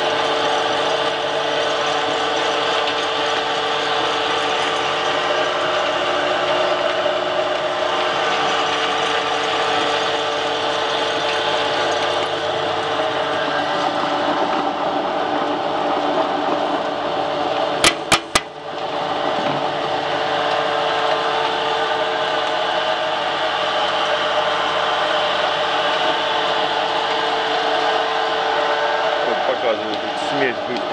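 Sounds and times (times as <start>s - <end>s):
pellet mill running under load: 0.0s - 30.9s.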